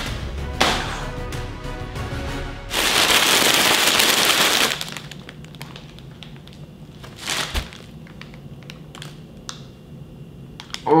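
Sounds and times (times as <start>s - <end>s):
plastic chip bags crinkling: 2.7s - 9.2s.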